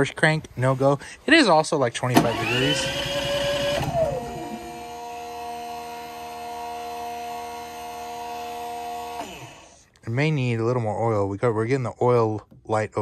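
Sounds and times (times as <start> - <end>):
generator engine running: 2.1 - 9.7.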